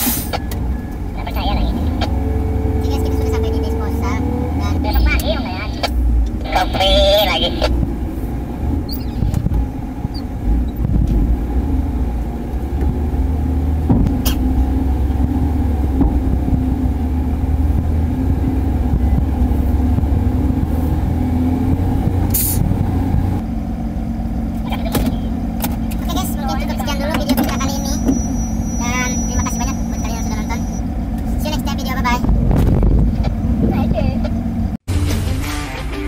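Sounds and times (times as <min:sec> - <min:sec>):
diesel truck engine running: 0:00.0 - 0:35.9
cab knocks and rattles: 0:13.8 - 0:14.4, 0:15.2 - 0:16.8.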